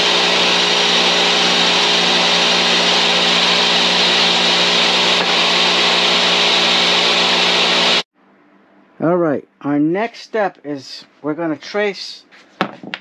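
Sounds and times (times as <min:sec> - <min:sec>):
table saw ripping wood: 0:00.0 - 0:08.0.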